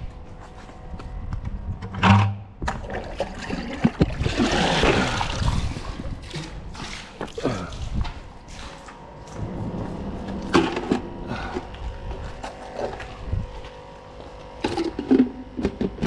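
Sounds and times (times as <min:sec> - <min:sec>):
water splashing and trickling: 0:02.7 - 0:09.0.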